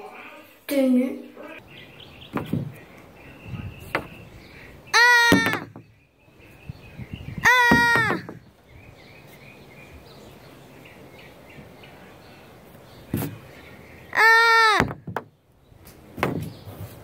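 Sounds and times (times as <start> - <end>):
faint distant bird chirps: 0.0 - 17.0
outdoor background noise: 0.0 - 17.0
crow cawing: 4.9 - 5.7, 7.4 - 8.3, 14.1 - 14.9.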